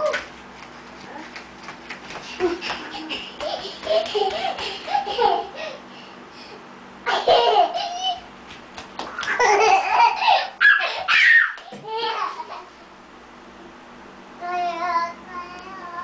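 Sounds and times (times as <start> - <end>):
young children laughing: 2.2 - 5.9, 7.0 - 8.3, 9.1 - 12.8.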